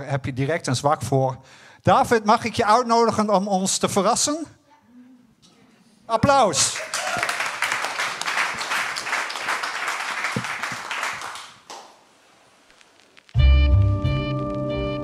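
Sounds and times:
audience applause: 6.6 - 12.0.

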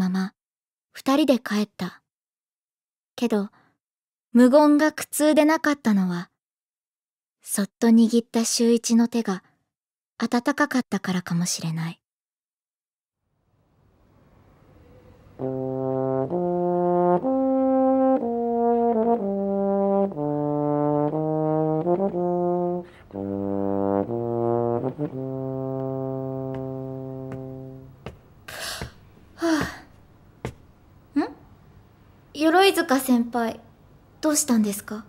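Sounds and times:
low brass slow melody: 14.2 - 28.1.

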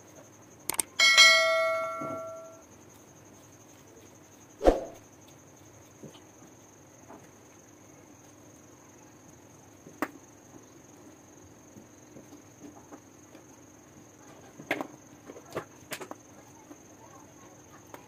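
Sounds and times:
faint high whine: 0.0 - 5.3.

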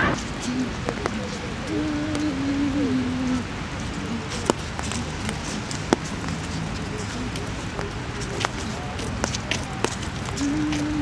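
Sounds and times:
rain hiss: 0.0 - 8.3.

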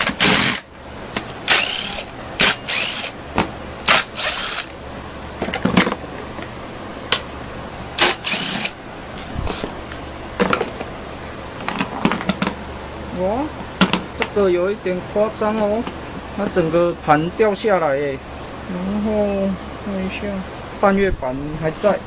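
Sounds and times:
cordless drill running: 0.0 - 0.7, 1.5 - 3.2, 3.9 - 4.7, 8.0 - 8.8.

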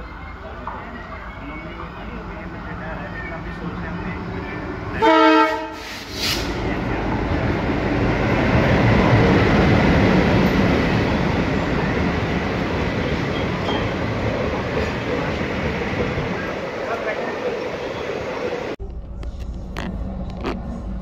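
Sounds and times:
diesel locomotive passing: 0.0 - 21.0
train wheels rumbling on rails: 0.4 - 21.0
locomotive horn blast: 4.9 - 6.6.

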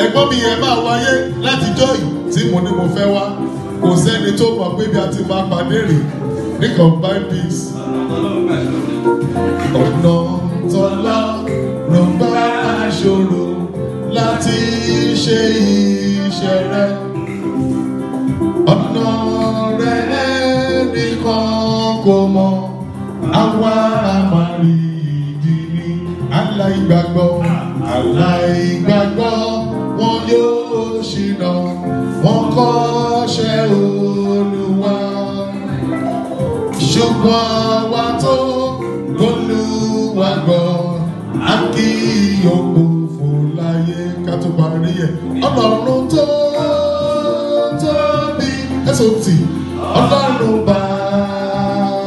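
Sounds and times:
amplified backing music: 0.0 - 52.0
man singing into microphone: 0.0 - 52.0.

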